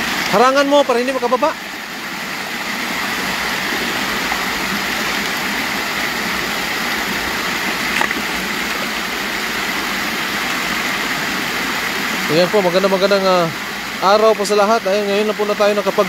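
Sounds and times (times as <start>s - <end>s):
stream rushing over weir: 0.0s - 16.0s
water splashing around legs: 2.9s - 11.9s.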